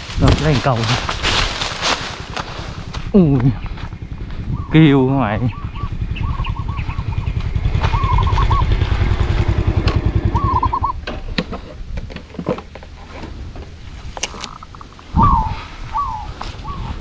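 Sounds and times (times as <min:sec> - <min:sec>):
small motorcycle engine running: 0:01.1 - 0:11.0
warbling bird calls: 0:03.2 - 0:11.4, 0:14.3 - 0:17.0.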